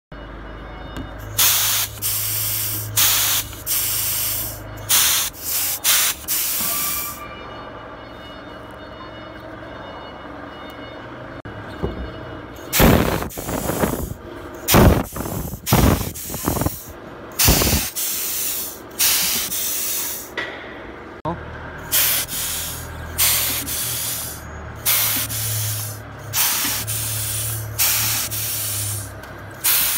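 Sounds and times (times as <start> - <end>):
compressed air hissing: 1.3 - 7.2, 12.7 - 20.4, 21.8 - 29.9.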